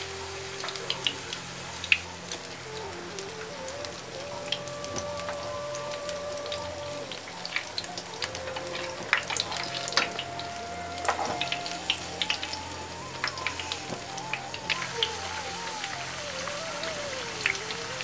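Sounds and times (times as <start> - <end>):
oil sizzling and popping: 0.0 - 18.0
soft tune of held notes: 0.0 - 18.0.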